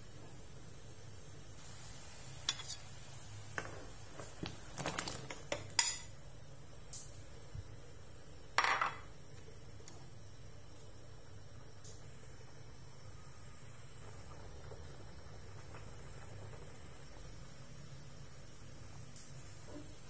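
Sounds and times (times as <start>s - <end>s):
ladle and bowl clinking on pot: 5.5s - 6.1s.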